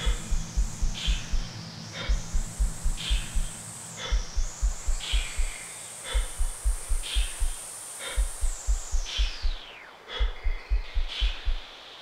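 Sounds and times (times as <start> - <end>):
deep bass synth pulse: 0.0 - 5.6.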